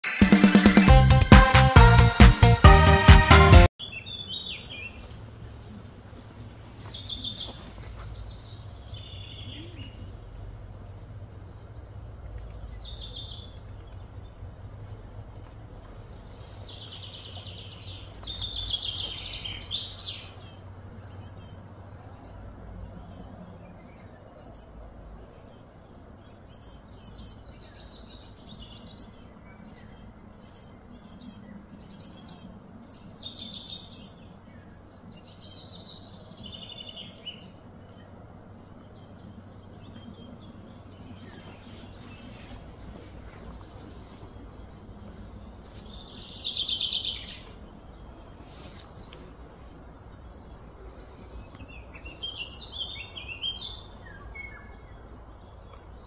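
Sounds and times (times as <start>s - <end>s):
birds chirping and singing: 3.8s - 56.0s
steady low hum: 4.9s - 56.0s.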